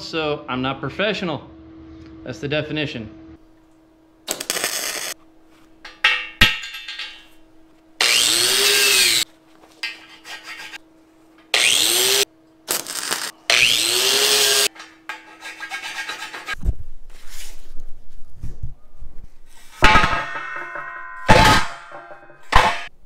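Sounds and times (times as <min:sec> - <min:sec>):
angle grinder on steel: 0:08.0 - 0:09.2, 0:11.5 - 0:16.6
hand tool scraping metal: 0:09.8 - 0:10.8, 0:14.4 - 0:16.6.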